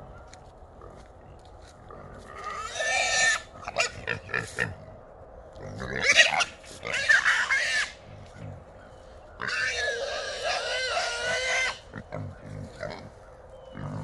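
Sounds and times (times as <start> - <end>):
hogs squealing: 2.2 - 4.8, 5.8 - 8.5, 9.4 - 13.2.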